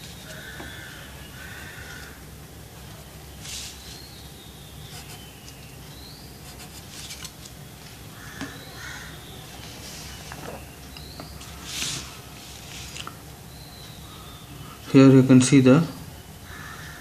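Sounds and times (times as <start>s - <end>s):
birds calling faintly: 0.0s - 17.0s
drawing tools scraping on paper: 6.4s - 7.4s.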